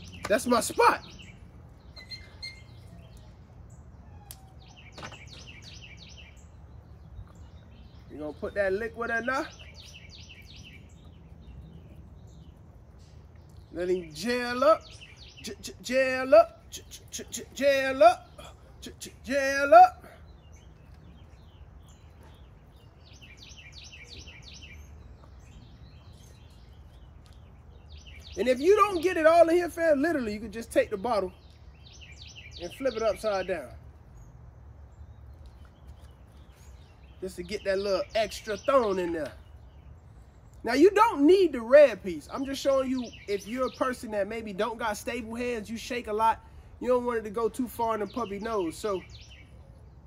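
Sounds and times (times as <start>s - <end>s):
birds chirping: 0.0s - 50.0s
low outdoor rumble: 0.0s - 50.0s.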